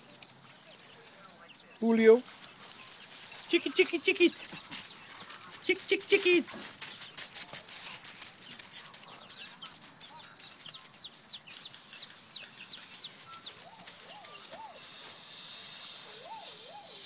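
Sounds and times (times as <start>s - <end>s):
baby chicks peeping: 0.0s - 17.0s.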